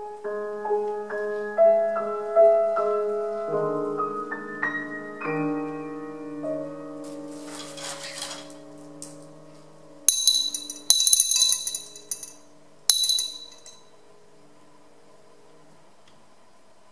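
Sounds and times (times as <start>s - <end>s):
piano notes ringing: 0.0s - 15.7s
sharp metallic clinks: 10.1s - 13.8s.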